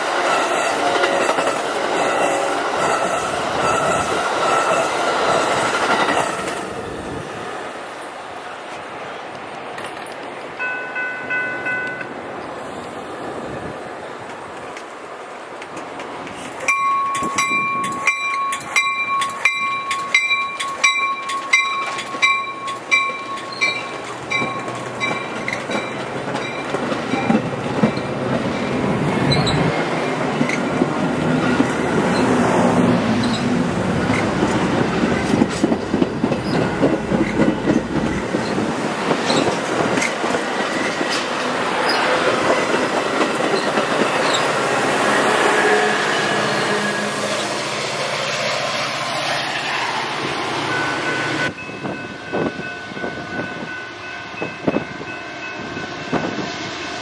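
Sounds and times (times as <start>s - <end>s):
train wheels rumbling on rails: 0.0s - 57.0s
bell ringing: 16.7s - 27.4s.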